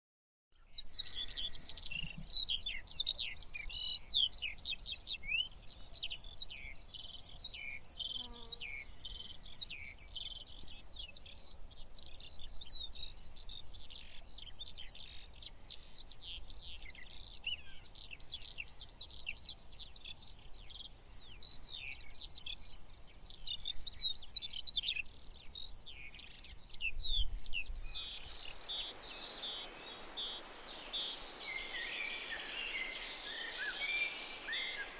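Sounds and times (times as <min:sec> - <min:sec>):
songbirds chirping: 0:00.6 - 0:34.9
steady hiss: 0:27.9 - 0:34.9.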